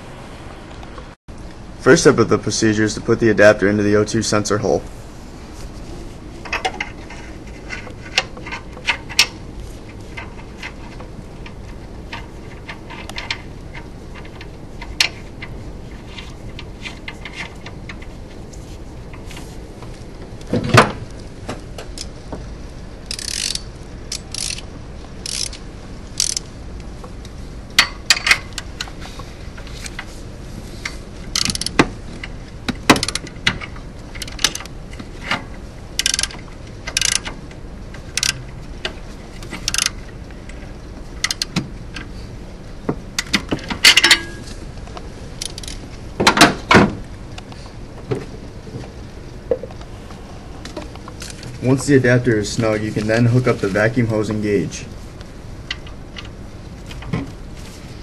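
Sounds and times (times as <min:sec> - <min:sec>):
hand ratchet clicking: 0:23.0 - 0:26.5, 0:30.8 - 0:31.9, 0:32.9 - 0:34.7, 0:36.0 - 0:37.4, 0:38.1 - 0:38.4, 0:39.6 - 0:40.0, 0:41.2 - 0:41.6, 0:45.4 - 0:45.8
metal tools clinking: 0:43.8 - 0:44.6.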